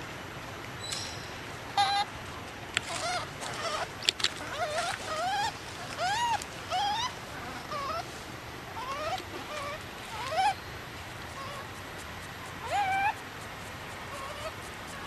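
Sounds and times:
infant monkey whimpering: 0:01.8 - 0:02.1, 0:02.9 - 0:08.1, 0:08.7 - 0:10.6, 0:11.2 - 0:15.0.

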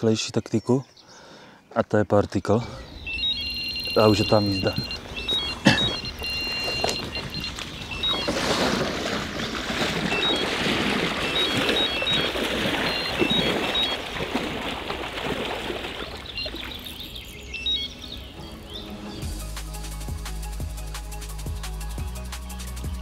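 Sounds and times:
bite alarm beeping: 0:03.0 - 0:08.8, 0:10.0 - 0:14.2, 0:17.3 - 0:18.0
water rushing and splashing: 0:03.7 - 0:19.9.

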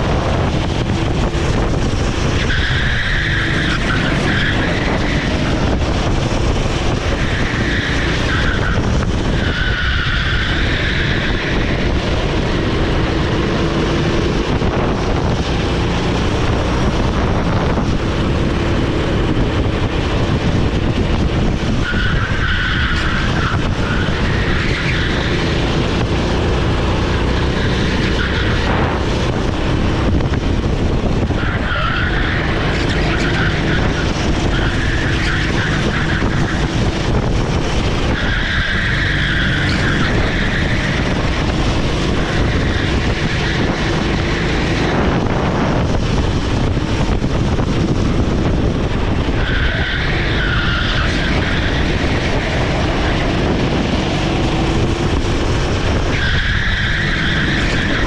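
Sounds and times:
kart engine running hard: 0:00.0 - 0:58.0
tyres squealing: 0:02.3 - 0:05.9, 0:21.7 - 0:25.8, 0:31.3 - 0:44.9, 0:49.1 - 0:58.0.

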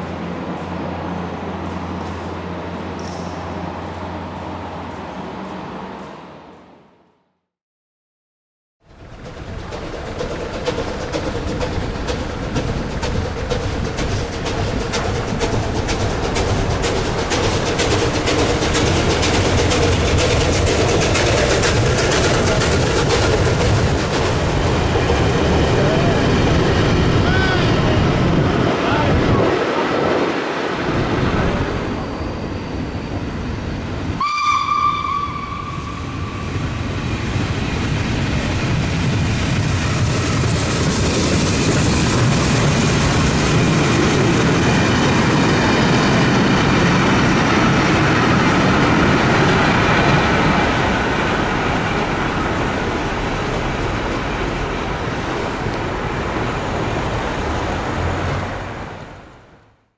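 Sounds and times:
train clattering on rails: 0:00.0 - 0:07.0, 0:08.8 - 0:59.0
high-pitched train horn: 0:34.2 - 0:36.4.

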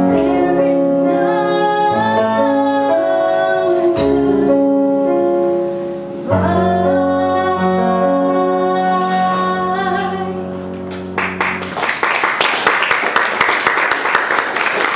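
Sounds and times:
woman singing: 0:00.0 - 0:04.8, 0:06.2 - 0:10.5
song with held chord: 0:00.0 - 0:11.8
audience applause: 0:11.2 - 0:14.9.

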